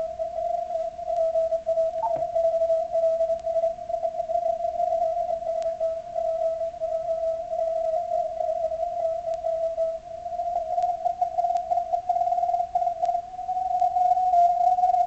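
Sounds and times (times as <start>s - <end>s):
faint static clicks: 0.0s - 15.0s
morse code tone: 2.0s - 2.3s.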